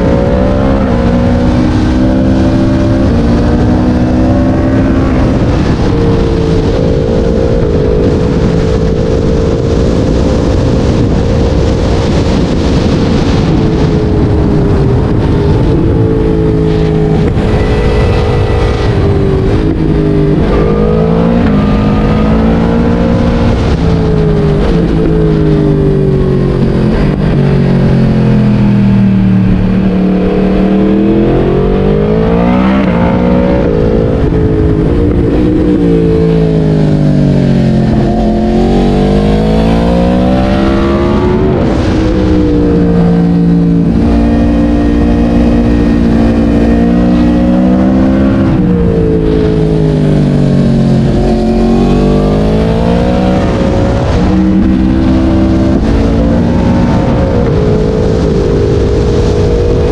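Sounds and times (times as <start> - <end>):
motorcycle engine accelerating: 0.0 - 59.9.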